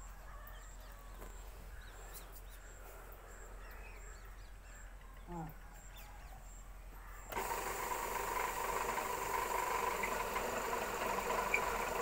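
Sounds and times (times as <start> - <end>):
machine whirring and humming: 7.3 - 12.0.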